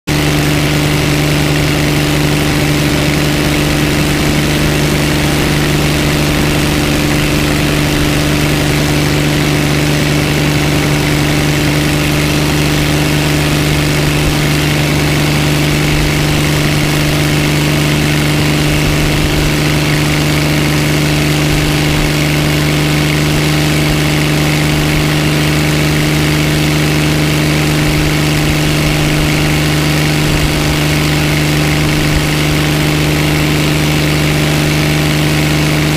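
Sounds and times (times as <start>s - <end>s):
helicopter engine and rotor hum: 0.1s - 35.9s.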